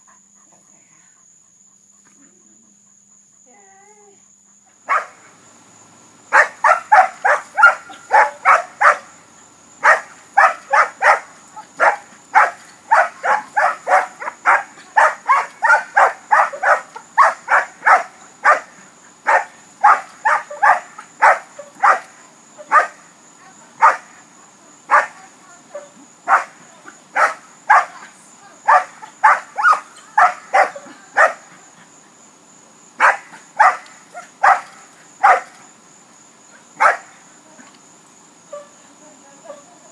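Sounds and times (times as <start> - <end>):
dog barking rapidly: 4.9 - 5.2, 6.3 - 9.1, 9.8 - 22.0, 22.7 - 23.0, 23.8 - 24.0, 27.2 - 27.9, 28.7 - 31.5, 33.0 - 35.5, 36.8 - 37.1.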